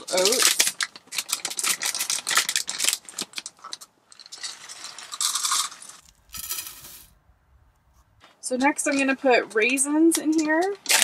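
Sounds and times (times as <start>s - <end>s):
plastic bag crinkling: 0.0s - 7.2s
oats pouring into metal pot: 4.6s - 7.1s.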